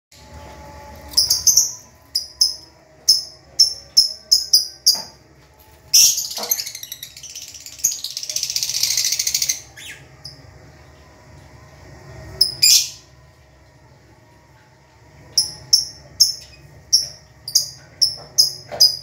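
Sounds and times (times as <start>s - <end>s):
birds chirping and chattering: 1.1s - 5.2s, 5.9s - 10.4s, 15.3s - 19.0s.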